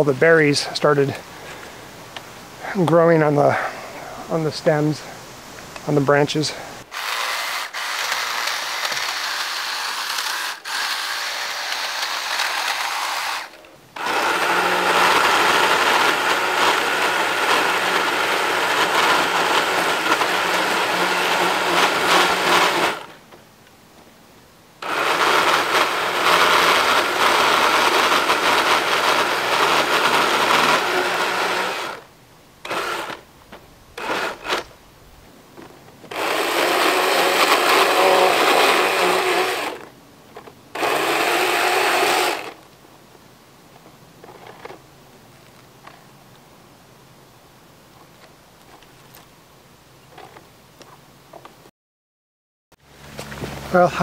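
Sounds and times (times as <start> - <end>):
electric pole saw running: 6.9 - 23.2, 24.8 - 33.2, 34.0 - 34.7, 36.1 - 39.9, 40.7 - 42.6.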